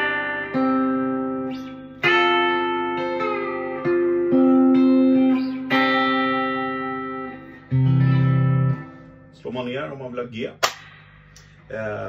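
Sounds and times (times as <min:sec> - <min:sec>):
electric guitar ringing notes: 0:00.0 - 0:09.5.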